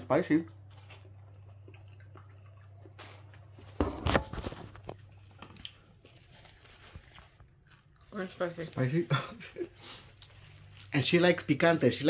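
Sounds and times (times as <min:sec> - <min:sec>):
faint chewing: 0:00.3 - 0:03.8, 0:04.7 - 0:11.1.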